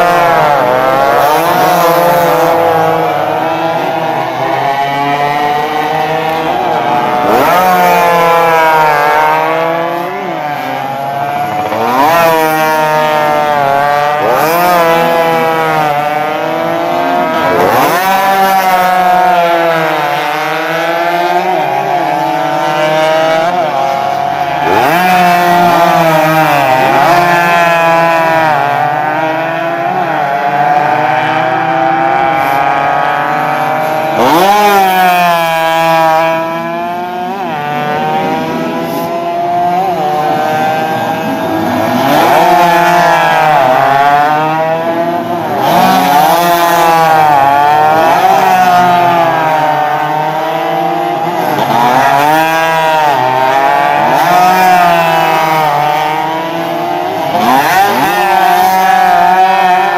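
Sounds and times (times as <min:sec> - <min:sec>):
racing motorcycles revving high: 0:00.0 - 0:59.9.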